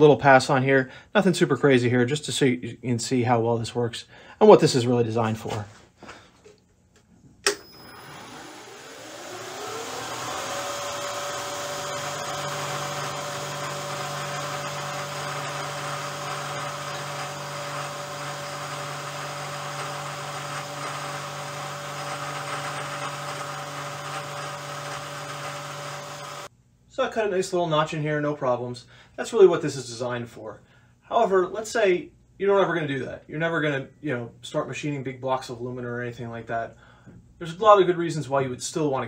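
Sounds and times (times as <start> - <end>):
machine switch click: 7.4 - 7.8
end mill cutting aluminum: 7.5 - 26.5
milling machine motor whine: 7.5 - 26.5.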